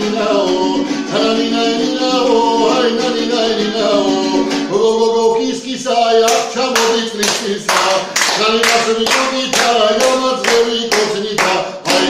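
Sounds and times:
man singing: 0.0s - 12.0s
hand claps: 6.2s - 12.0s.

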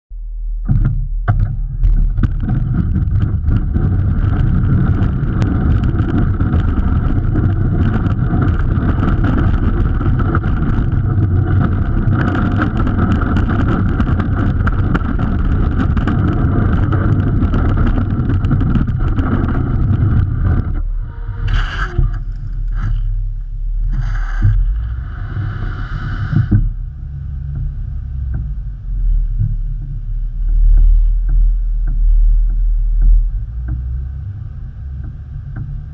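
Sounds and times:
steady low drone: 0.1s - 35.9s
snow rushing along plow blade: 1.9s - 21.9s.

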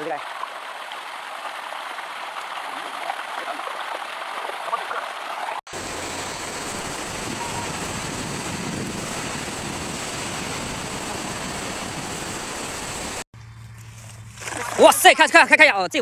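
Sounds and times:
fast-flowing water rushing: 0.0s - 13.2s.

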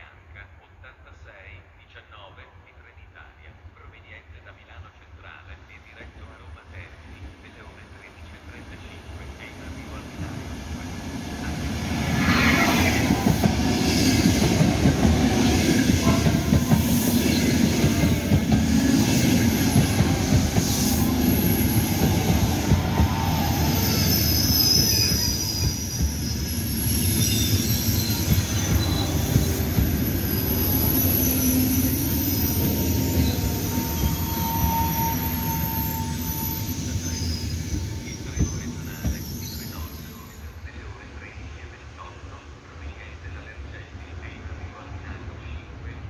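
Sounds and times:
train wheels rushing on rails: 8.5s - 40.4s
wheels squealing: 18.8s - 40.2s.

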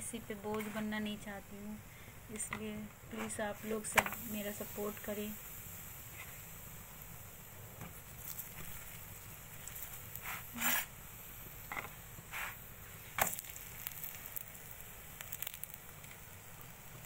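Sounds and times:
faint sizzle: 0.0s - 17.0s.

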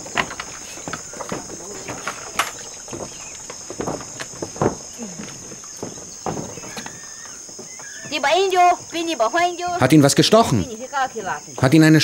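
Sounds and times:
knocks on wooden floorboards: 0.0s - 8.2s
insects chirring: 0.0s - 12.0s.

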